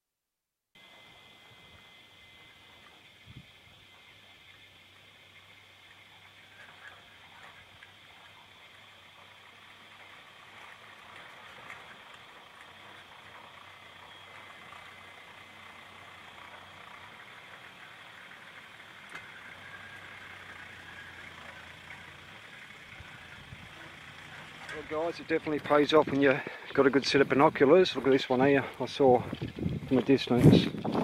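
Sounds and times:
distant diesel engine driving: 0:00.8 - 0:30.4.

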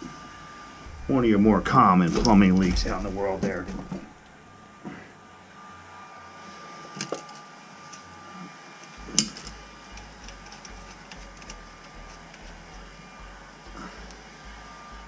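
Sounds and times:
drain parts clicking and knocking: 0:02.1 - 0:04.1.

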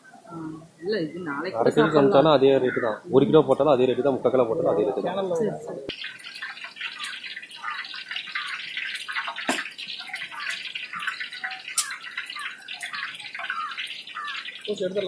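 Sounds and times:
oil sizzling in a wok: 0:05.9 - 0:15.0.

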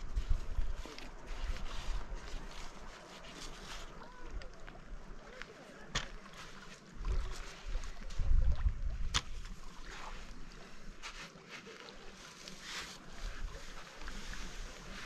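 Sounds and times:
fabric rustling: 0:00.0 - 0:04.5, 0:09.6 - 0:15.0
small waves lapping: 0:00.0 - 0:15.0.

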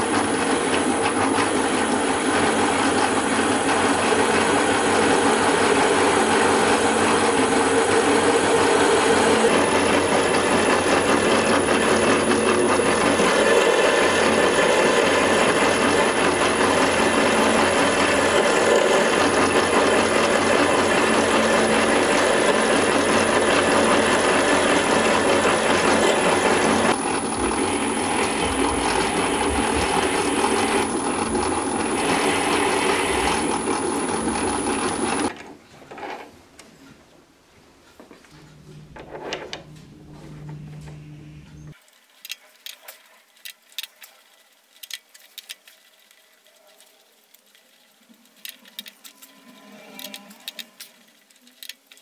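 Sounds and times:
metal lathe running: 0:00.0 - 0:35.3, 0:38.4 - 0:41.8.

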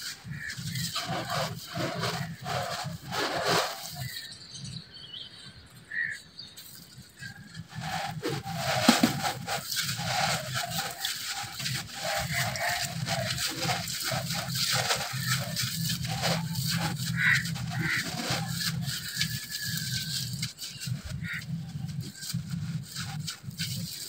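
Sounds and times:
dirt crunching by hand: 0:08.2 - 0:13.4.

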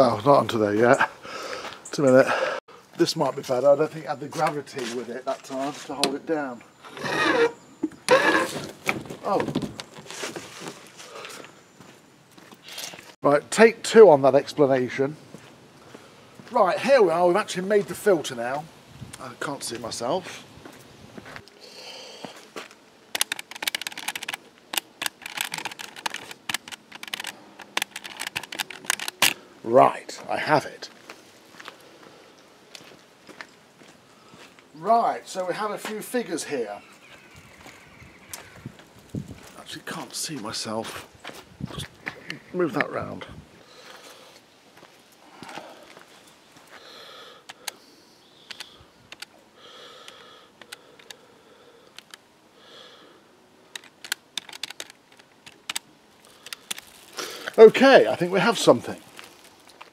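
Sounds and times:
person breathing: 0:01.2 - 0:02.9, 0:11.0 - 0:11.6, 0:21.6 - 0:22.6, 0:34.0 - 0:34.6, 0:43.6 - 0:44.4, 0:45.2 - 0:46.1, 0:46.7 - 0:53.4, 0:56.2 - 0:57.6
calculator keys clicking: 0:23.2 - 0:29.3, 0:53.8 - 0:55.8.

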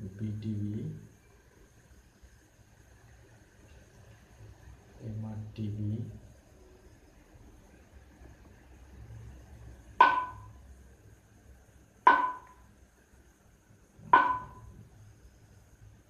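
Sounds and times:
sharp ringing knocks: 0:10.0 - 0:10.6, 0:12.1 - 0:12.6, 0:14.1 - 0:14.8.

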